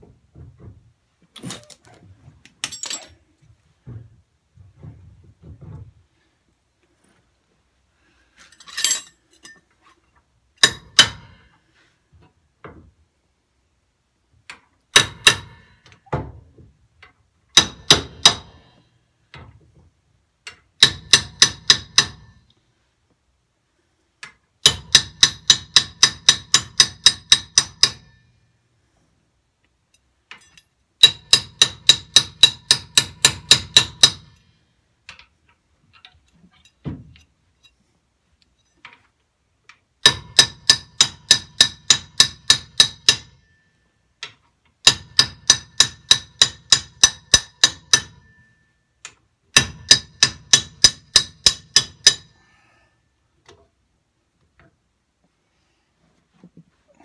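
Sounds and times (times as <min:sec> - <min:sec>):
hammer striking steel: 0:10.6 - 0:11.5, 0:14.9 - 0:15.8, 0:17.5 - 0:18.7, 0:20.8 - 0:22.4, 0:24.6 - 0:28.2, 0:30.4 - 0:34.4, 0:40.0 - 0:43.6, 0:44.8 - 0:48.7, 0:49.5 - 0:52.4.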